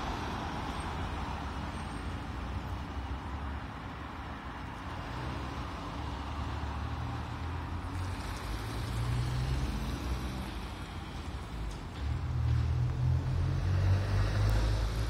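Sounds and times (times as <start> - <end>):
cars passing: 0.0 - 15.0
trolleybus rolling through a turn: 4.6 - 15.0.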